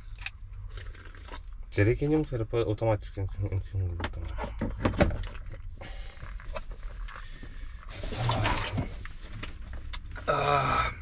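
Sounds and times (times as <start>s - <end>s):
rustling and handling noises: 6.1s - 10.3s
person groaning: 10.3s - 11.0s.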